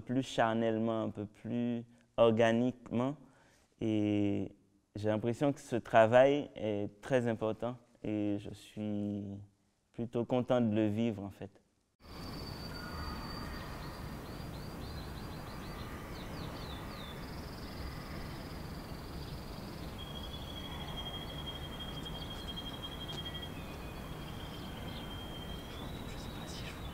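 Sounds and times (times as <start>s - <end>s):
background noise: 0.0s - 26.9s
descending bird chirps: 12.1s - 26.9s
high bird trill: 12.1s - 26.9s
birds singing: 12.3s - 26.9s.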